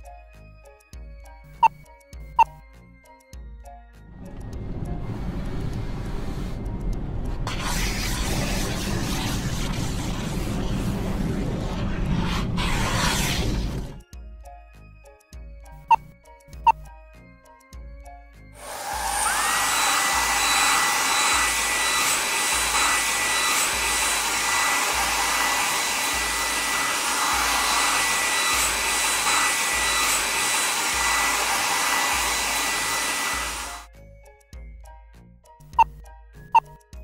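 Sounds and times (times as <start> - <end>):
air blower whining: 18.6 - 33.9.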